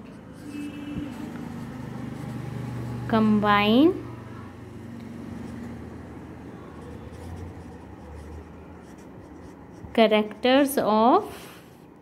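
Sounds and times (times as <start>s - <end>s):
marker pen scratching on paper: 0.0s - 3.0s, 5.1s - 10.8s.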